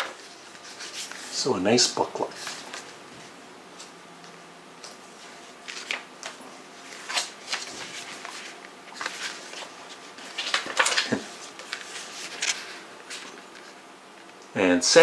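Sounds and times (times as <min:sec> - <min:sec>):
paper pages rustling: 0:00.0 - 0:01.4, 0:02.2 - 0:03.3, 0:05.2 - 0:13.8.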